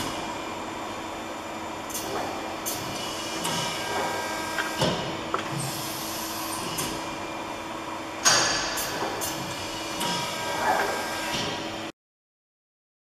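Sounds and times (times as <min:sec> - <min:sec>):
machine clicks and clunks: 0:08.2 - 0:11.6.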